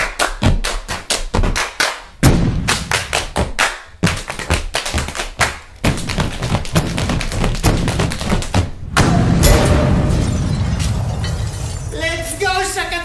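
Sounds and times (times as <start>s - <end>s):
body percussion stomps and strikes: 0.0s - 10.0s.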